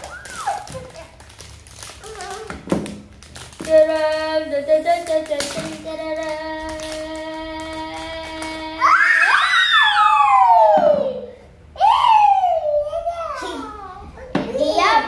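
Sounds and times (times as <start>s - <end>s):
plastic packaging crinkling and tearing: 0.0s - 4.3s.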